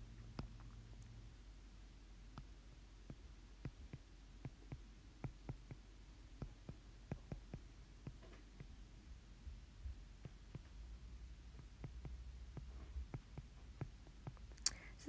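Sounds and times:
low steady hum: 0:00.0 - 0:15.0
stylus tapping on screen: 0:02.3 - 0:08.8, 0:11.6 - 0:14.8.

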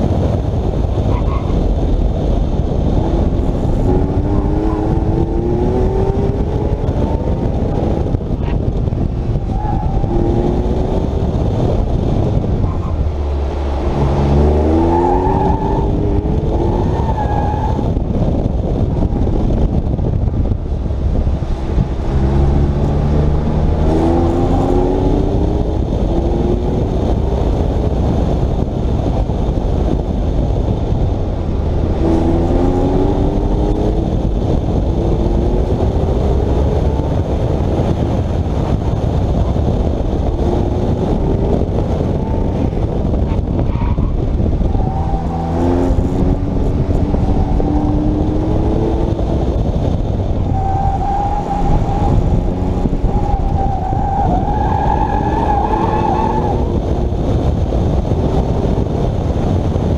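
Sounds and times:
wind rumble: 0:00.0 - 0:59.9
car engine revving: 0:00.5 - 0:59.9.

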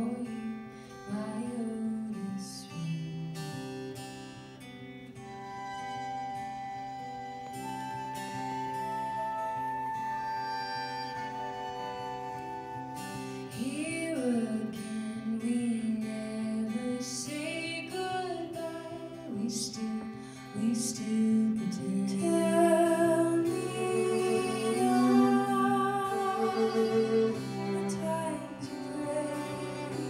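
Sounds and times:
acoustic guitar: 0:00.0 - 0:30.0
female voices singing folk song: 0:20.6 - 0:30.0.

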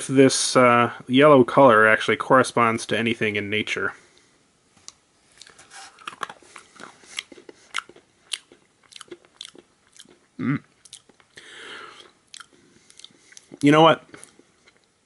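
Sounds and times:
crunchy chewing: 0:05.3 - 0:15.0
person humming: 0:10.4 - 0:10.7.

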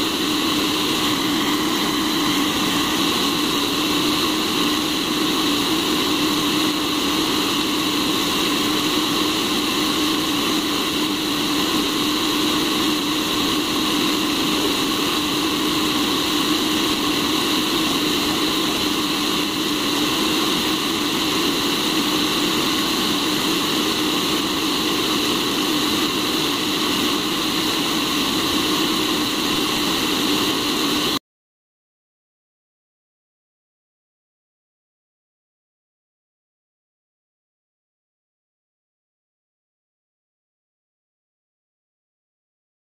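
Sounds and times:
coffee roaster fan blowing: 0:00.0 - 0:31.2.

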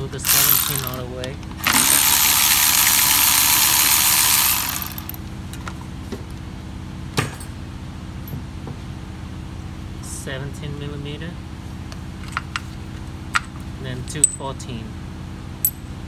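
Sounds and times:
cordless ratchet running: 0:00.0 - 0:05.2
steady low hum: 0:00.0 - 0:16.0.

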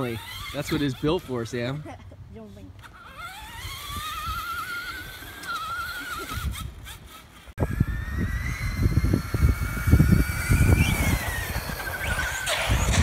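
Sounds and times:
electric motor whine: 0:02.8 - 0:13.0.

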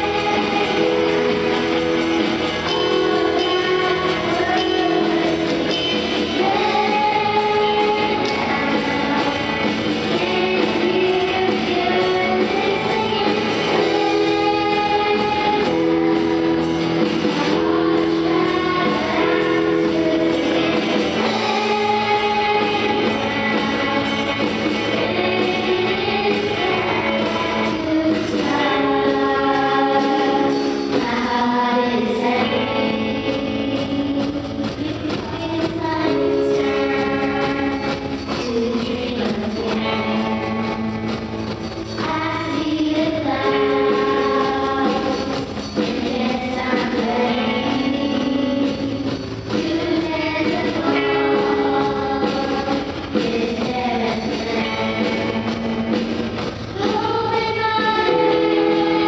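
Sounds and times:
electronic drum kit: 0:00.0 - 0:59.0.

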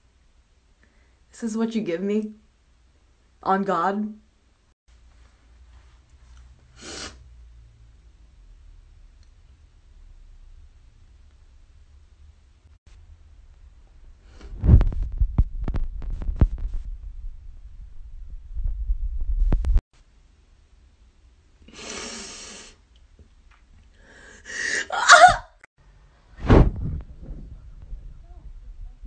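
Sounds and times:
woman's cry of dismay: 0:24.7 - 0:25.6.

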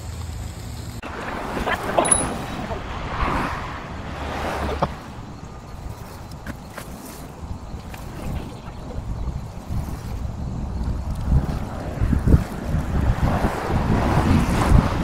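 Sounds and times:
wind on microphone: 0:01.0 - 0:15.0
car driving past: 0:01.1 - 0:05.4.

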